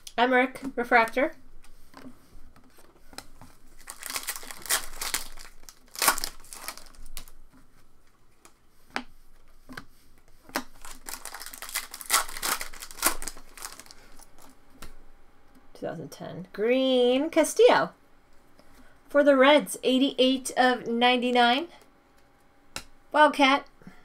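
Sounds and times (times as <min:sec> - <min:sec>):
trading cards rustling: 0:00.9 - 0:07.4, 0:10.3 - 0:14.6
foil wrapper tearing open: 0:03.8 - 0:07.3, 0:10.7 - 0:14.5.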